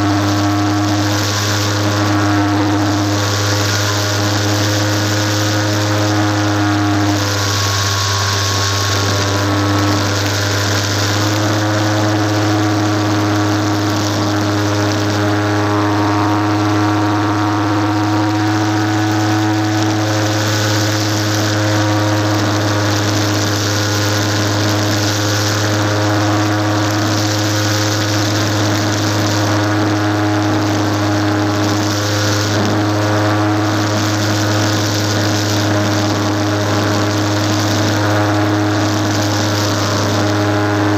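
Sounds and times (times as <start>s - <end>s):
electric motor and propeller: 0.0s - 40.9s
wind noise on microphone: 0.0s - 40.9s.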